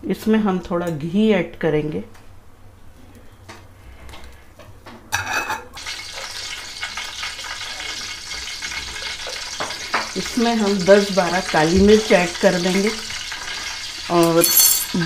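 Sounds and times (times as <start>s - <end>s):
ghee sizzling in a pot: 5.8s - 15.0s.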